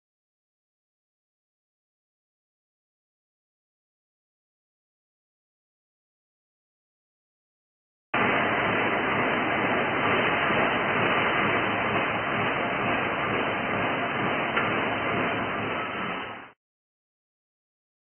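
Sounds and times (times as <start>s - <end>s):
steady rushing noise: 8.2s - 16.6s.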